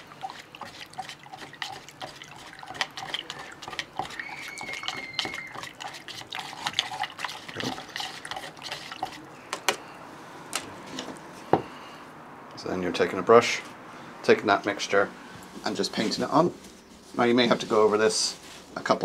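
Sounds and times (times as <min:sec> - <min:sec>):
liquid swishing: 0:00.0 - 0:09.4
high squeak: 0:04.2 - 0:05.6.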